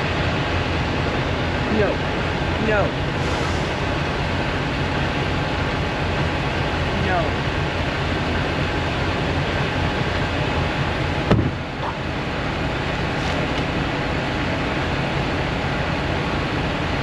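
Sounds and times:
truck diesel engine idling: 0.0 - 17.0
sharp thump: 11.3 - 11.6.

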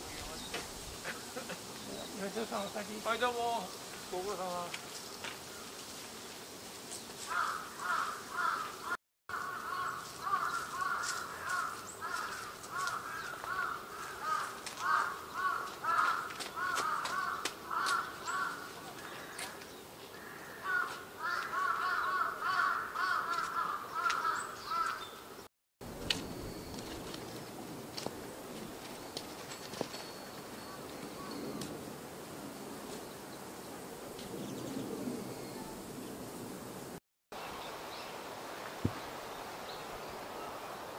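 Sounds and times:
harsh bird calls: 7.3 - 25.5.

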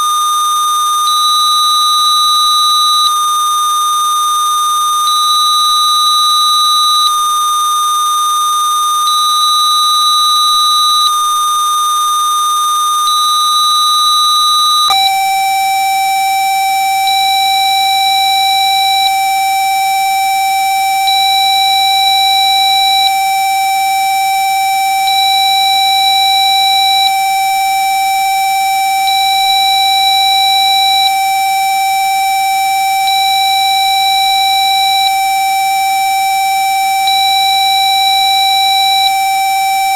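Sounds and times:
faint high tone switching on and off: 13.1 - 23.6
faint steady high tones: 13.2 - 39.9.

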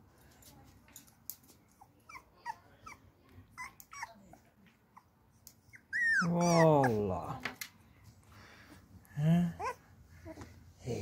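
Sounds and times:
puppy whimpering: 1.8 - 5.1, 5.7 - 7.2, 9.5 - 10.4
puppy crying loudly: 5.8 - 7.1.

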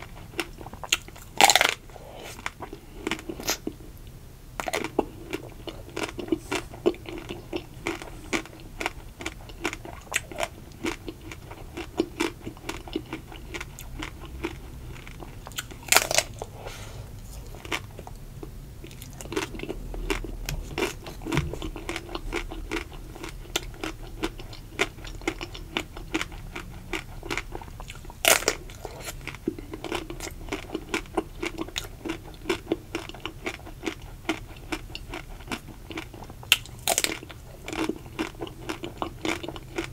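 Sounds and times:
soft chewing: 0.0 - 39.9
chocolate shell crunching: 4.6 - 16.4, 19.0 - 39.9.

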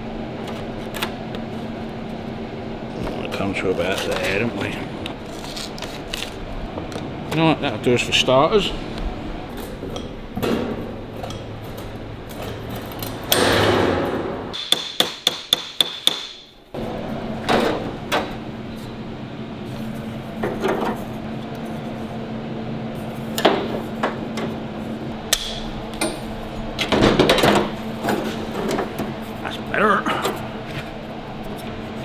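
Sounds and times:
hammer striking sheet steel: 13.3 - 16.5.

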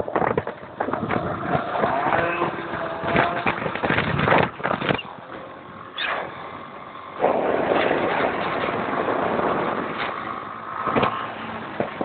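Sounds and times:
motorcycle engine and road noise: 0.0 - 12.0.

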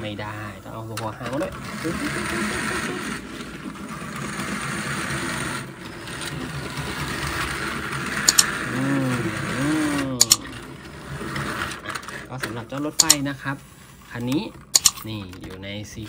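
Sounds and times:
plastic wheels rattling on wood: 0.0 - 13.5
toy train motor whirring: 0.0 - 15.1
sharp clicks: 8.2 - 8.7, 10.2 - 10.5, 13.0 - 13.3, 14.6 - 15.2.

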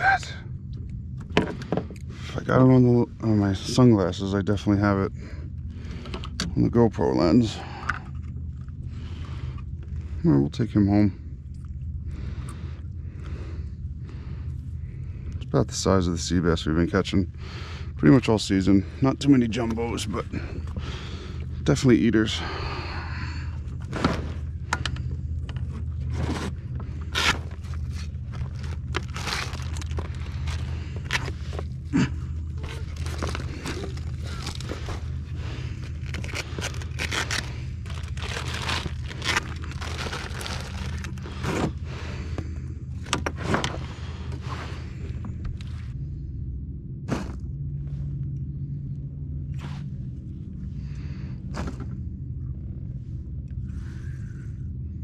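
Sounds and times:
low rumble: 0.0 - 55.0
cooler bag lid scraping and rustling: 26.0 - 31.5.

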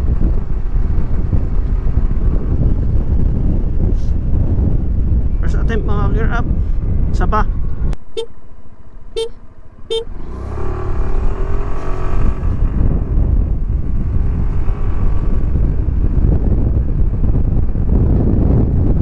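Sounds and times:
wind noise on microphone: 0.0 - 19.0
scooter engine accelerating: 9.0 - 19.0
short beeps: 9.2 - 10.1.

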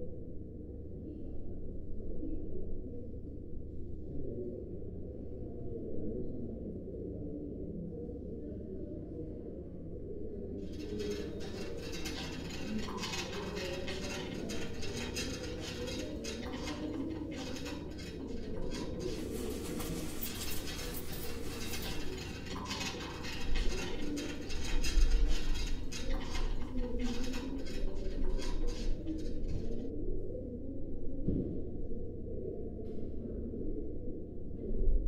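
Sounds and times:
dishes and utensils clinking: 10.7 - 29.8
low indistinct rumble: 10.7 - 30.1.

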